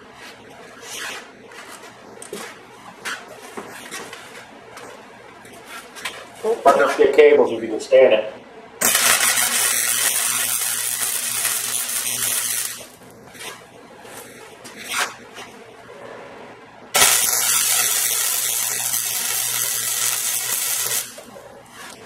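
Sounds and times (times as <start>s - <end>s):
welding arc sizzling: 8.8s - 15.3s, 17.0s - 22.0s.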